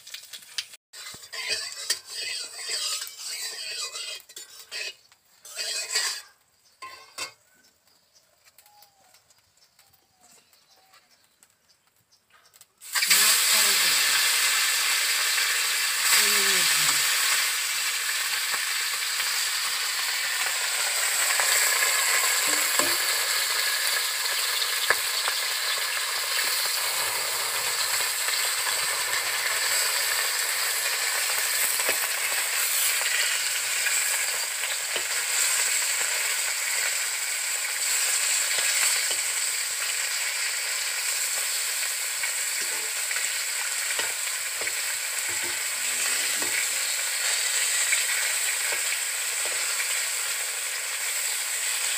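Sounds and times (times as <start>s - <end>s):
fish sizzling in hot oil: 0.0s - 10.0s, 12.8s - 51.9s
metal spatula scraping pan: 0.9s - 7.4s, 18.8s - 36.9s, 42.3s - 49.8s.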